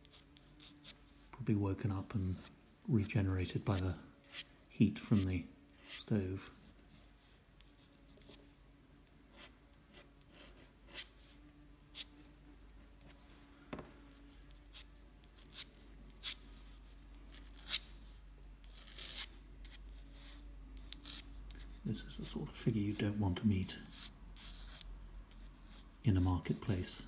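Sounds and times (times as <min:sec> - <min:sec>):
pen nib scratching on paper: 0:00.0 - 0:01.1, 0:09.3 - 0:12.2, 0:18.7 - 0:21.8, 0:23.9 - 0:26.9.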